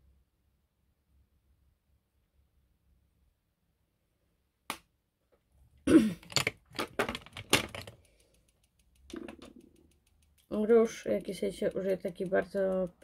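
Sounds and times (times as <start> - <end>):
cosmetic items knocking and clattering: 6.1 - 8.0, 9.1 - 9.6.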